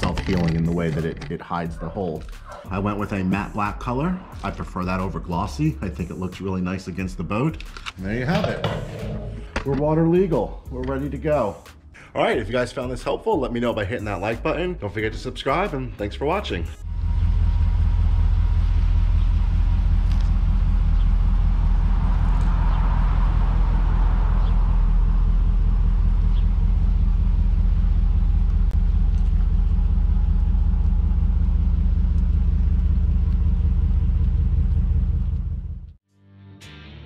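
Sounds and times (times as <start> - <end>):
pickup truck engine idling: 16.8 - 35.9.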